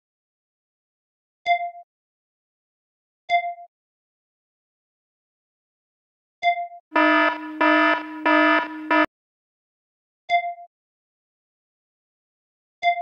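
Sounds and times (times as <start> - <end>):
harsh pulsing buzzer tone: 6.9 - 9.1.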